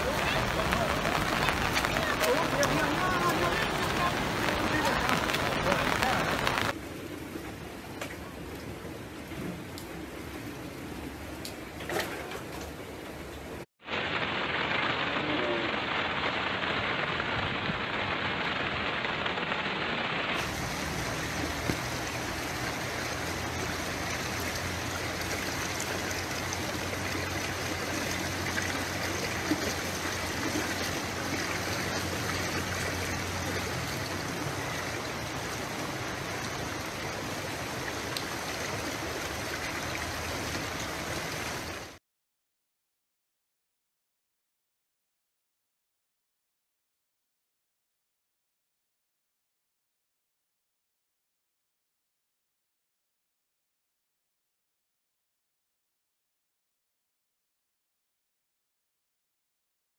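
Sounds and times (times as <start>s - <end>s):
heavy rain: 0.0s - 42.0s
rushing floodwater: 0.0s - 42.0s.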